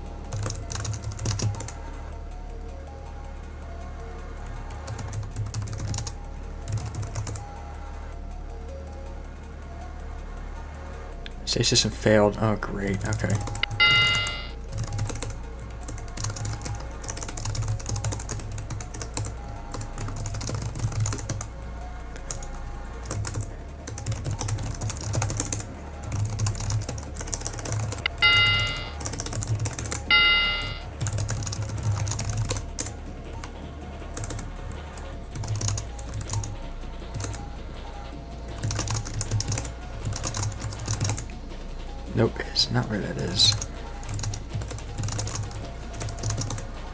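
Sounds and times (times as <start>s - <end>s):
keyboard typing: 0.2s - 1.8s, 4.9s - 7.4s, 13.0s - 21.5s, 22.2s - 33.5s, 34.2s - 34.4s, 35.3s - 36.5s, 37.1s - 37.4s, 38.6s - 41.2s, 43.2s - 46.6s
music with pulsing beat: 13.5s - 42.2s
short electronic beeps: 13.6s - 14.6s, 28.0s - 29.0s, 30.1s - 30.9s.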